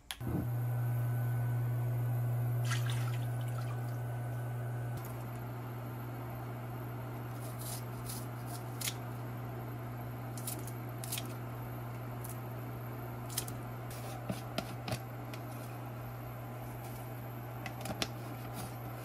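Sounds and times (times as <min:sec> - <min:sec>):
low hum: 0:00.1 - 0:08.3
scissors snipping onion: 0:07.3 - 0:09.0, 0:10.3 - 0:11.4, 0:13.3 - 0:15.4.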